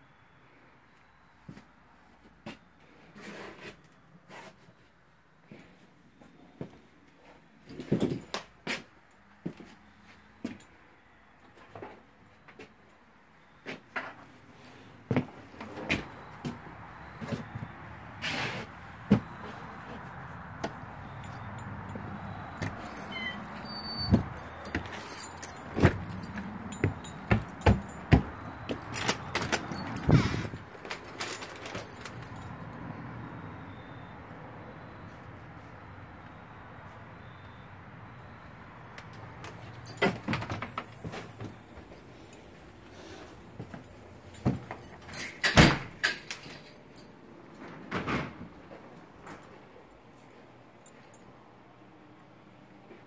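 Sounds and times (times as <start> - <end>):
footsteps: 15.1 - 32.5.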